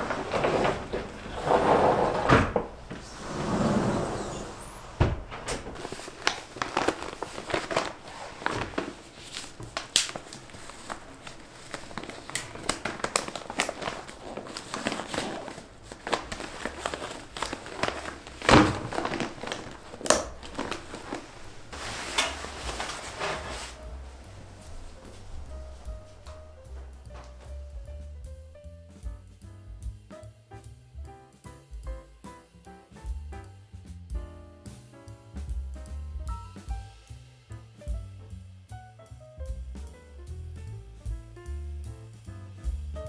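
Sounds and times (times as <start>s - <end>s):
handling knocks: 0.0s - 28.2s
plastic mat crinkling: 5.2s - 27.9s.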